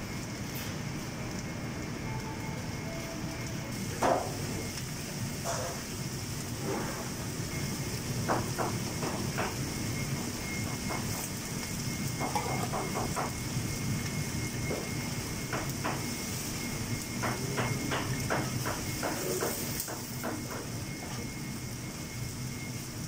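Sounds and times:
faint high whine: 0.0 - 5.8
kitchen ventilation hum and hiss: 0.0 - 23.0
metal tongs clattering on pans: 12.2 - 13.1.

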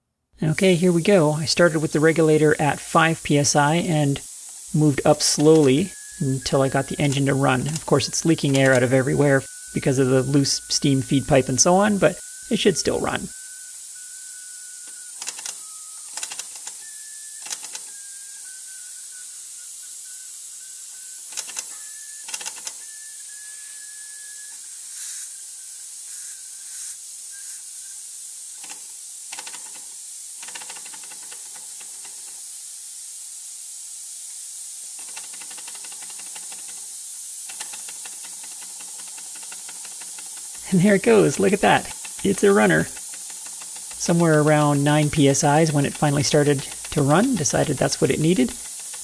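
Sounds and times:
compressed air hissing: 0.4 - 49.0
thin wavering whistle: 5.4 - 28.6
mechanical clicks: 6.5 - 8.9, 14.8 - 18.0, 21.3 - 22.9, 28.6 - 32.4, 35.0 - 40.6, 41.2 - 49.0.

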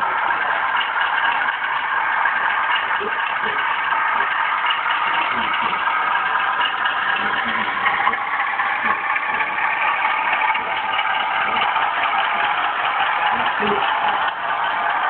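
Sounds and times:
diesel engine sound: 0.0 - 15.0
model wagons rolling on track: 0.0 - 15.0.

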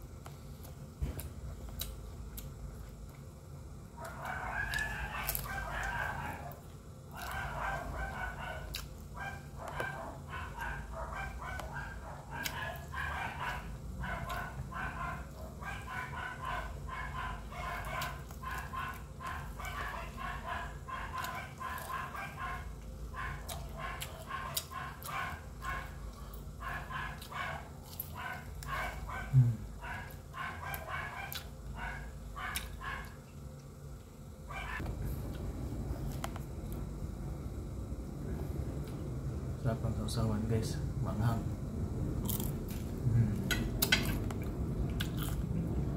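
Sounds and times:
wet chewing noises: 0.2 - 3.3, 3.9 - 34.0, 42.2 - 45.7.

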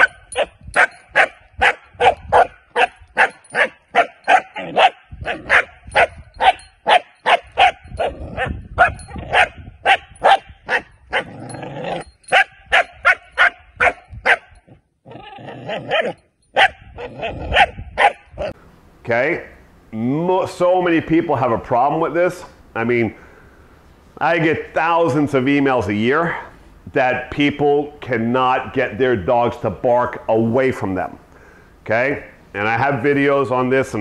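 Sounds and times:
puppy barking rapidly: 0.0 - 11.3, 11.9 - 14.6, 15.7 - 18.5.

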